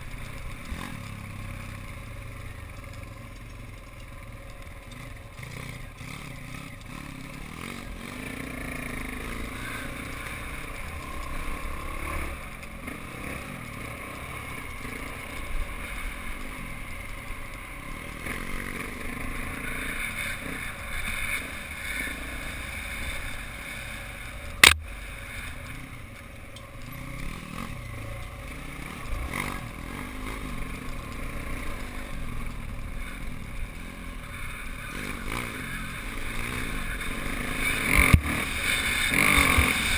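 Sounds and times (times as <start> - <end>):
motorcycle engine running: 0.0 - 39.9
sharp knock: 24.6 - 24.8.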